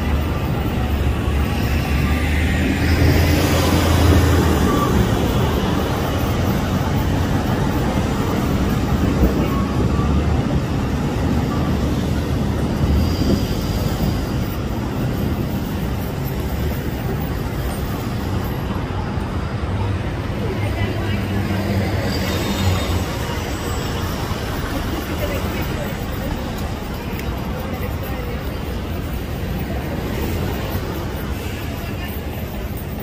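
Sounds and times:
traffic engine rumble: 0.0s - 33.0s
tyre and road noise: 0.0s - 33.0s.

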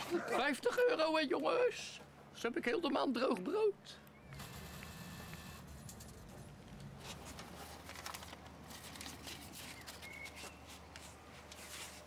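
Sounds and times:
banknotes rustling: 6.0s - 12.0s.

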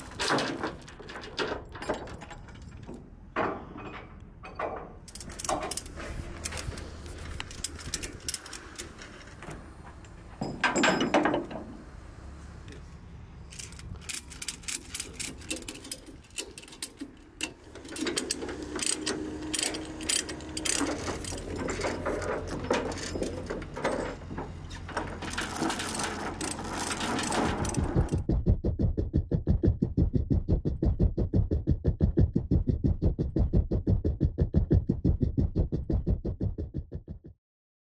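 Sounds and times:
chain rattling: 0.0s - 3.0s, 5.1s - 11.7s, 13.5s - 28.3s
low steady hum: 0.0s - 36.3s
ratchet strap clicking: 13.5s - 22.3s.

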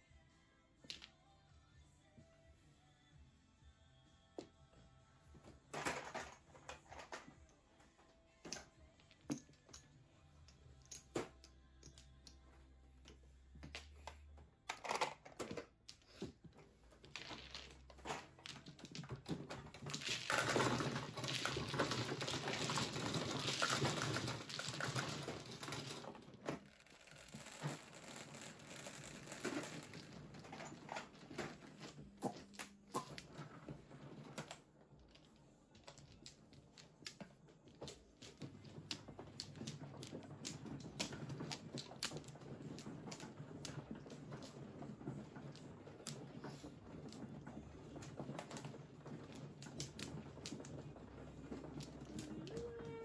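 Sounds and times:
low steady table hum: 8.5s - 53.0s
mahjong tiles clicking and clattering: 17.0s - 26.0s, 26.6s - 33.4s, 34.4s - 53.0s.

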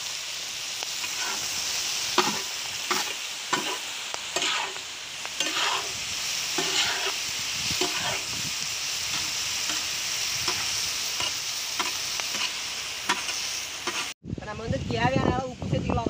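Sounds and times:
chicken sizzling in oil: 0.0s - 14.2s
metal spatula scraping pan: 4.4s - 4.8s, 5.4s - 6.0s, 6.6s - 7.2s, 7.8s - 8.3s.

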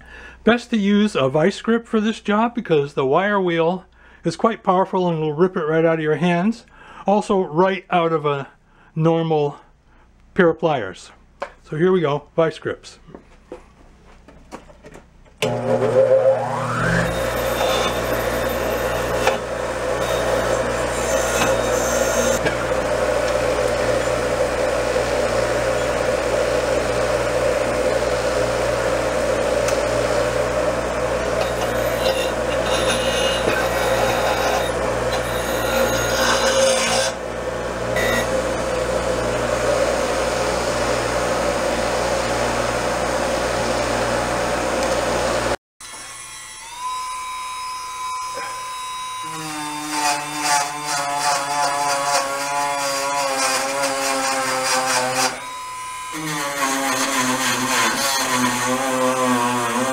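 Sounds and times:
wire wheel grinder whining: 15.4s - 59.9s
metal scrubbed on wire wheel: 15.9s - 24.7s, 31.3s - 37.2s.

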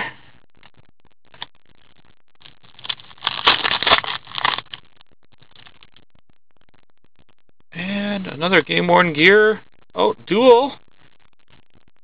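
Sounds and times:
cards scraping and rustling: 2.8s - 4.8s.

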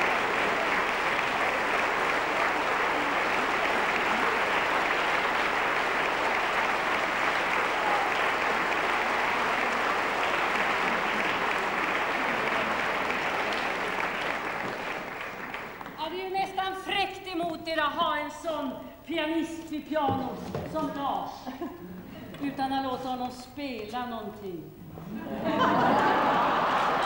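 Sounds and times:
audience applauding: 0.0s - 16.1s, 25.3s - 27.0s.

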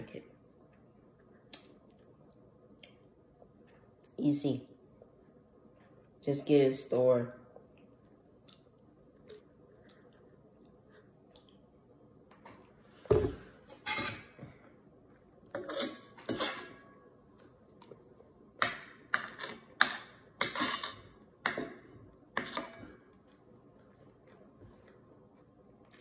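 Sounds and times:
cutlery scraping a plate: 13.8s - 14.4s, 15.5s - 16.9s, 19.1s - 21.8s, 22.4s - 23.0s.

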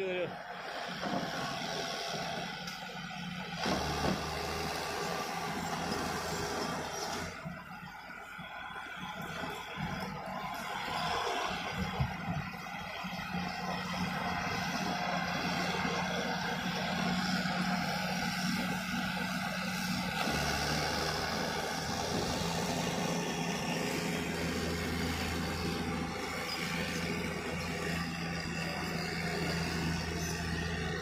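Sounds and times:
bulldozer diesel engine running: 0.0s - 31.0s.

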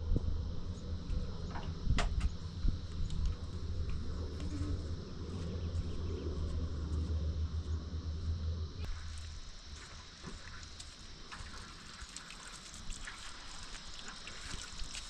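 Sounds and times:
low rumble: 0.0s - 9.5s
insects droning: 0.0s - 15.0s.

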